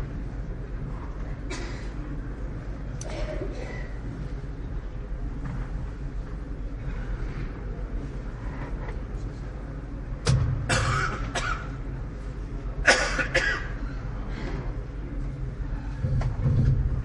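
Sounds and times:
person coughing: 1.5s - 2.0s, 3.0s - 4.0s, 10.7s - 11.8s, 12.8s - 13.8s.

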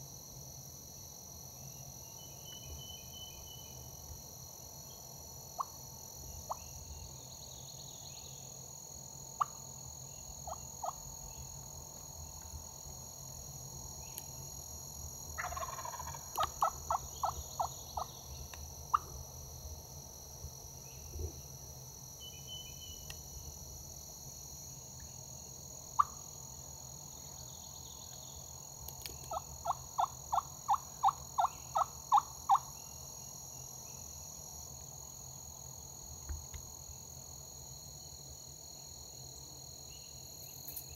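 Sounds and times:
turkey gobbling: 15.4s - 17.4s.

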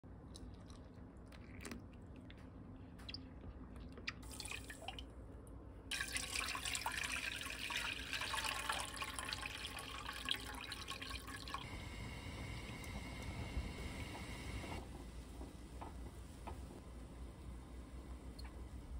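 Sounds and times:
water trickling into glass bowl: 4.1s - 5.1s, 5.9s - 11.6s
liquid pouring through metal strainer: 5.9s - 11.6s.

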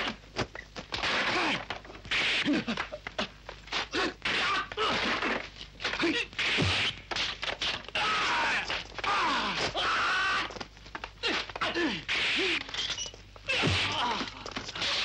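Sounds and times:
punch and kick whacks: 3.8s - 7.8s, 13.5s - 14.2s
fighters grunting and yelling: 8.0s - 10.6s.

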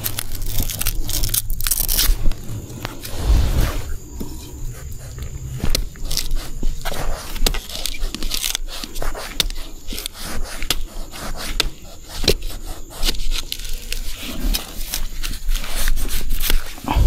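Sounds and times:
dry bamboo leaves crackling: 0.0s - 3.3s, 6.0s - 8.9s.

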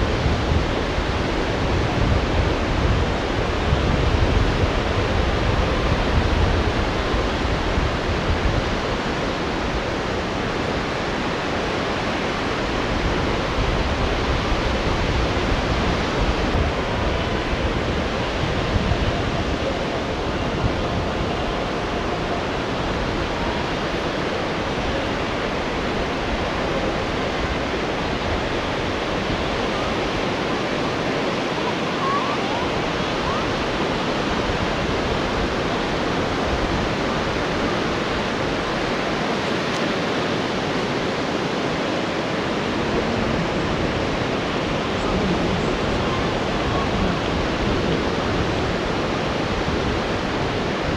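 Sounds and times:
heavy surf breaking: 0.0s - 50.9s.

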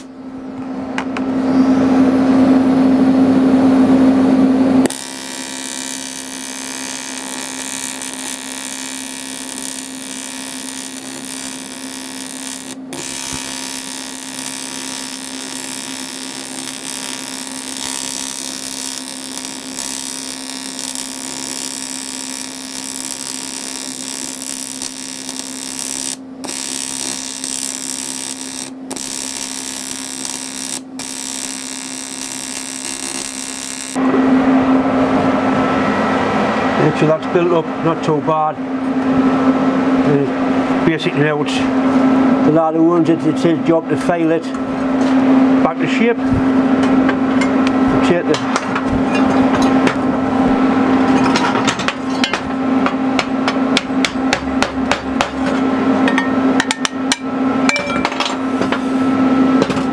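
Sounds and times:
welding arc buzzing: 3.8s - 34.6s.

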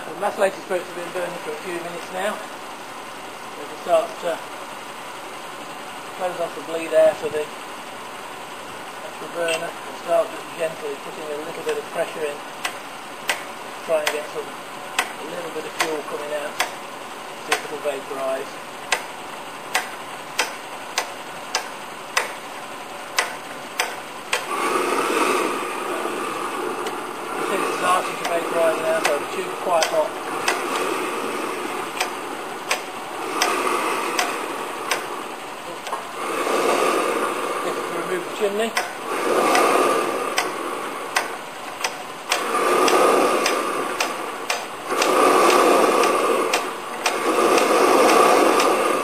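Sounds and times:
hand pump clicking: 12.6s - 14.4s, 15.0s - 16.8s, 19.7s - 22.4s, 27.7s - 31.0s, 31.9s - 35.1s, 38.7s - 48.8s
burner rushing hiss: 23.8s - 49.0s.

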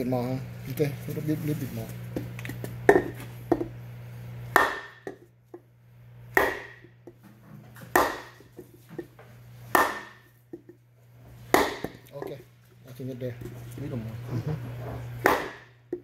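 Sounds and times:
hammer striking wooden block: 4.5s - 5.2s, 6.4s - 6.9s, 7.9s - 8.5s, 9.7s - 10.3s, 11.5s - 12.4s, 15.2s - 16.0s.

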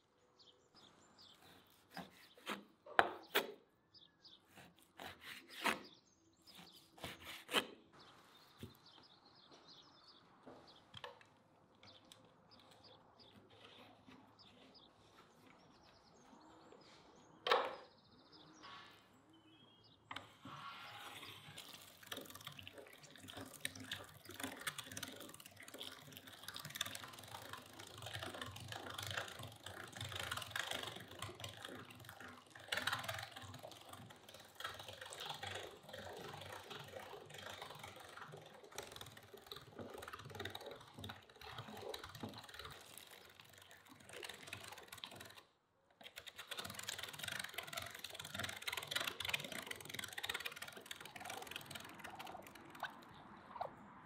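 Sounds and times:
hand-cranked meat grinder clicking: 21.6s - 53.2s.

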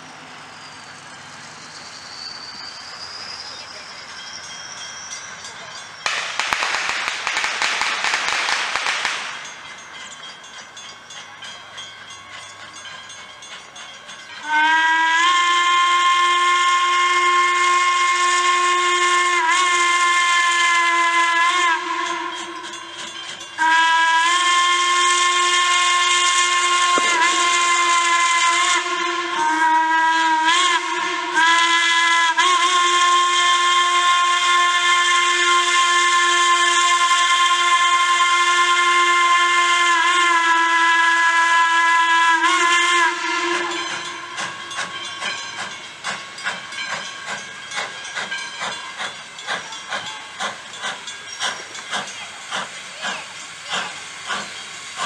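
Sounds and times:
steam whistle blasts: 0.0s - 9.5s, 14.4s - 45.8s
steam hissing: 0.0s - 55.0s.

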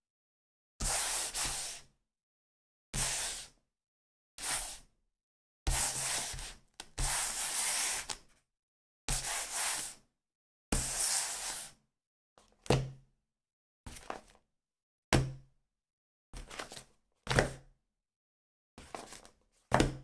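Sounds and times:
book sliding across tabletop: 3.0s - 3.5s, 5.7s - 8.2s, 10.8s - 11.8s.

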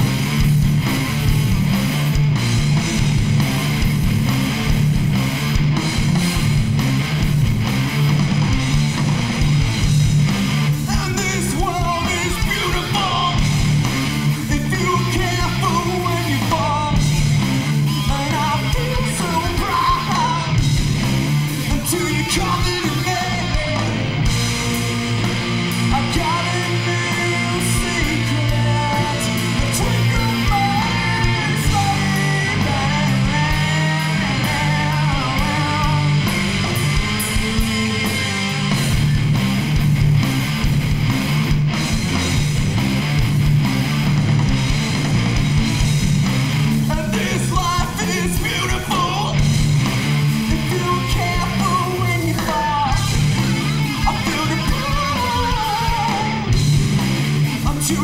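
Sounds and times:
bass guitar: 0.0s - 58.0s
drum kit: 0.0s - 58.0s
electric guitars: 0.0s - 58.0s
person singing: 10.8s - 13.5s, 14.4s - 17.0s, 18.0s - 20.6s, 21.6s - 24.1s, 25.8s - 38.3s, 46.9s - 49.5s, 50.5s - 56.6s, 57.6s - 58.0s.

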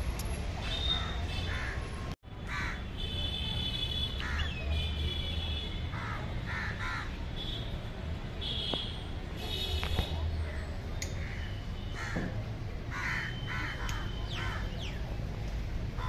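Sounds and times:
crows cawing: 2.5s - 2.8s, 6.0s - 7.2s, 12.0s - 12.2s, 12.9s - 14.7s.

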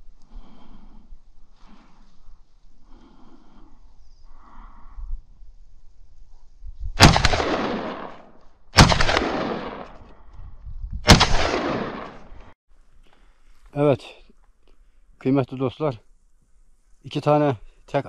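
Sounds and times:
shotgun shots echoing: 7.0s - 10.0s, 11.1s - 12.4s.

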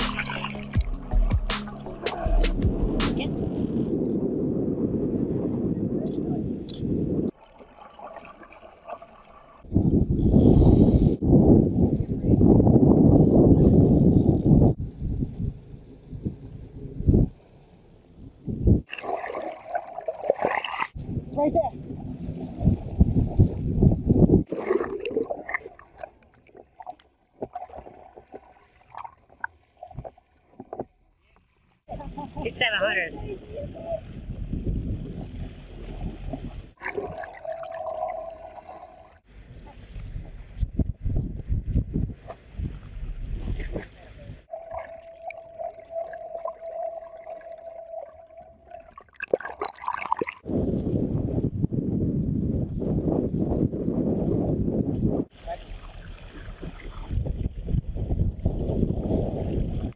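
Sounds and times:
water splashing against boat: 0.0s - 3.9s, 15.4s - 50.6s, 55.3s - 59.9s
wind noise: 0.0s - 7.4s, 9.6s - 17.4s, 18.2s - 25.8s, 31.9s - 47.4s, 48.0s - 59.9s
muffled underwater whine: 44.0s - 49.0s.

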